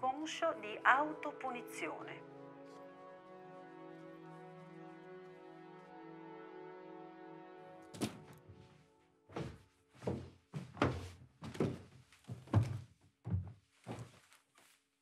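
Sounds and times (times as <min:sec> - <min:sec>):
music: 0:00.0 - 0:11.0
footsteps down wooden stairs: 0:07.9 - 0:14.7
short thump: 0:08.0 - 0:08.4.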